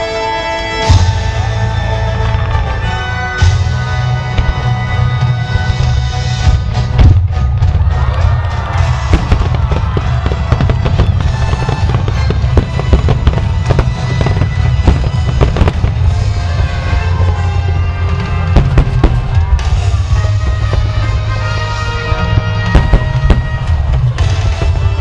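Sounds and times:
music playing: 0.0s - 25.0s
firework shells bursting: 8.9s - 16.4s.

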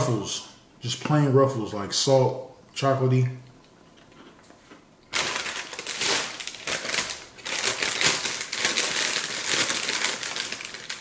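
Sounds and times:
crunching potato chips: 5.1s - 11.0s
paper snack bag crinkling: 5.1s - 11.0s.

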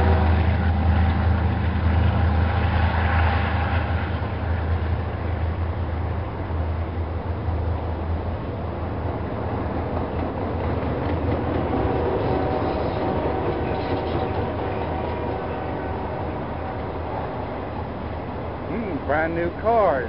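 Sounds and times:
freight train rumble and clatter: 0.0s - 20.0s
high whine from train wheels: 0.0s - 20.0s.

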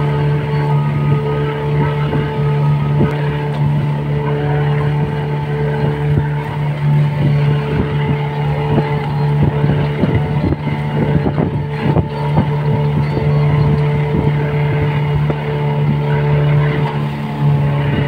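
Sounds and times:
motorboat engine running: 0.0s - 18.0s
water splashing against hull: 0.0s - 18.0s.

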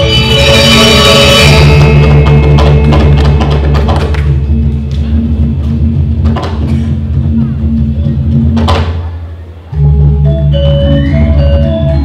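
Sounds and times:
high metallophones ringing: 0.0s - 3.7s, 9.8s - 12.0s
gamelan playing: 0.0s - 6.2s, 9.7s - 12.0s
deep gongs pulsing: 0.0s - 8.7s.

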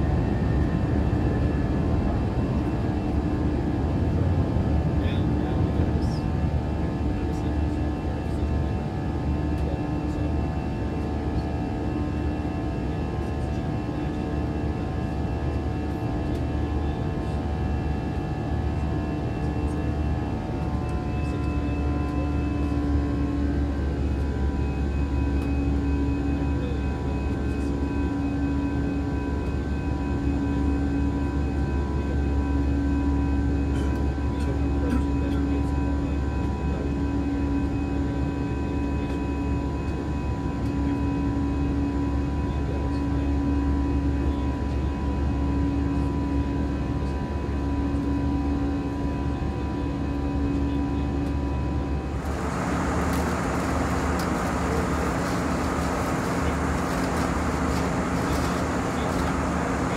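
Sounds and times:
aircraft engine and airflow rumble: 0.0s - 59.9s
pulsing cabin hum: 51.9s - 59.9s.

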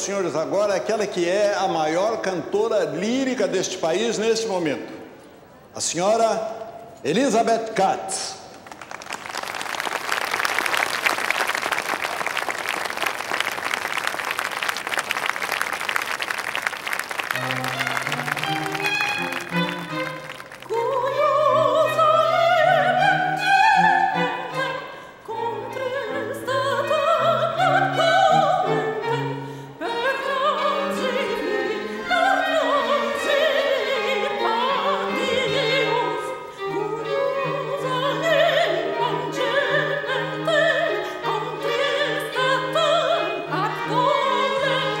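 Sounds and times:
string quartet playing: 17.1s - 45.0s
soprano singing with vibrato: 18.1s - 45.0s.

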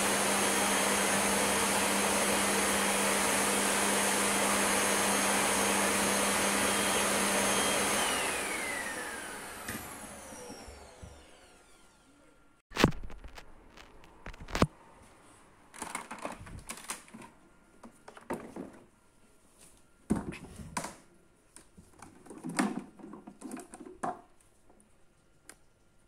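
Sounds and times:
plastic clicks and clatter: 15.7s - 18.8s.

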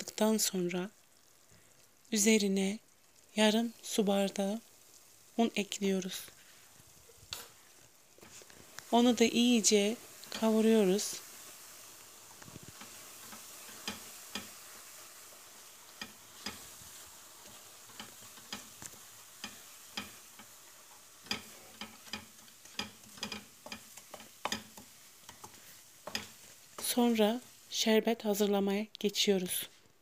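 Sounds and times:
faint sizzle: 0.0s - 30.0s
wooden spoon scraping metal pot: 8.2s - 11.4s, 12.3s - 14.8s, 16.0s - 27.7s.

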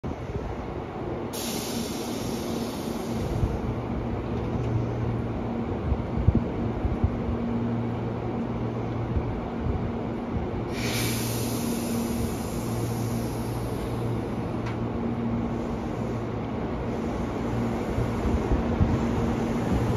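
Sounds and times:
train equipment low hum: 0.0s - 19.9s
hiss: 1.3s - 3.7s, 10.7s - 14.8s.

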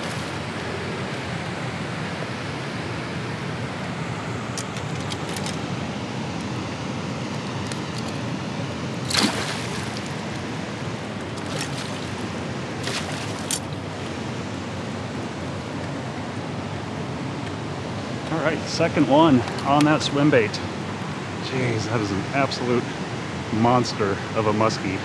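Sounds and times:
sharp knocks and splashes: 0.0s - 0.4s, 9.0s - 10.4s, 11.3s - 13.8s
water rushing down spillway: 9.0s - 10.2s.

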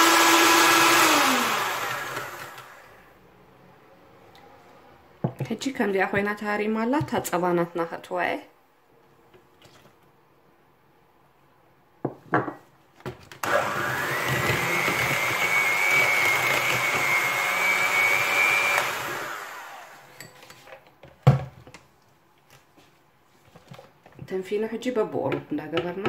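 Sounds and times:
electric hand mixer whining: 0.0s - 3.0s, 13.4s - 20.2s.

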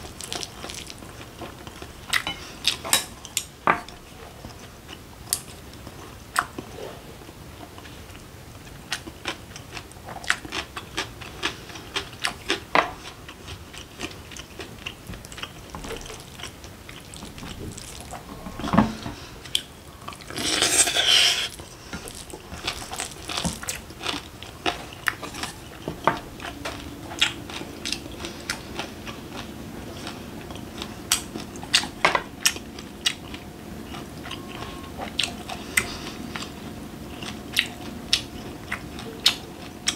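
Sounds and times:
chewing and crunching food: 0.0s - 39.9s
spoon scraping bowl: 20.3s - 21.6s.

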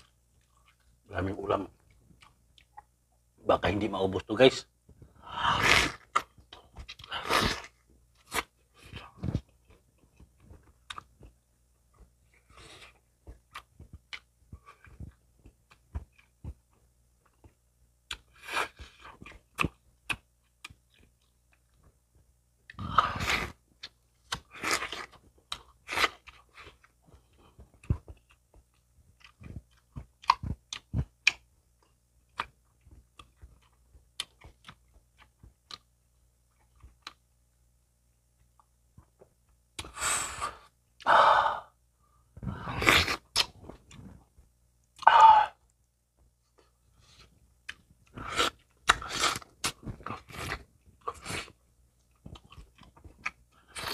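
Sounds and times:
person chewing: 0.0s - 0.9s, 2.2s - 2.9s, 5.2s - 21.8s, 22.7s - 35.9s, 36.5s - 37.2s, 39.8s - 41.4s, 42.5s - 45.6s, 46.6s - 53.9s
mouth clicks: 45.0s - 45.6s.

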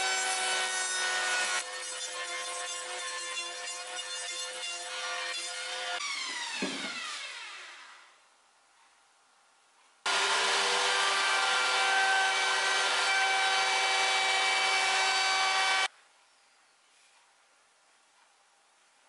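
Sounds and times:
router cutting wood: 0.0s - 8.1s, 10.1s - 15.9s.

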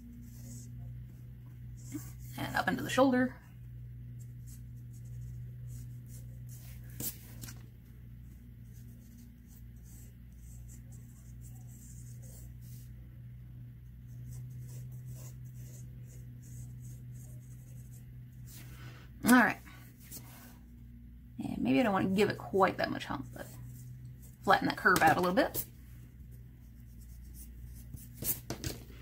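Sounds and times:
steady low hum: 0.0s - 29.0s
pencil sketching on paper: 0.1s - 1.0s, 1.7s - 3.0s, 4.1s - 7.2s, 8.6s - 13.0s, 14.0s - 18.6s, 26.6s - 28.4s.

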